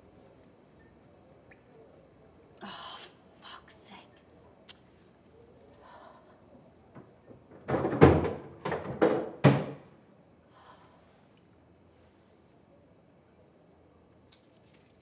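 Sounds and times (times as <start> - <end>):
heavy bangs on cubicle door: 7.6 - 9.8.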